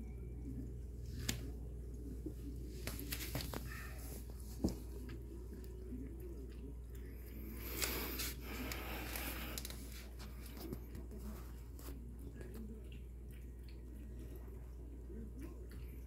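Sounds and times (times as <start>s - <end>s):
cat lapping water: 4.9s - 16.0s.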